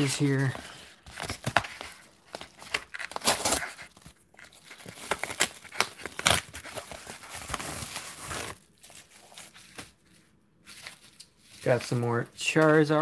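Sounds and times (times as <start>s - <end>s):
rustling of contents: 0.0s - 13.0s
paper mailer being torn open: 2.5s - 3.9s, 4.6s - 8.6s.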